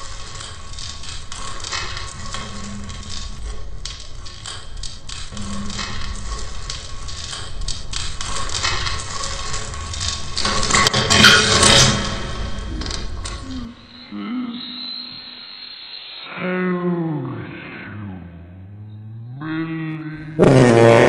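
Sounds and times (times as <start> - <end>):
low tone: 12.6 - 20.4.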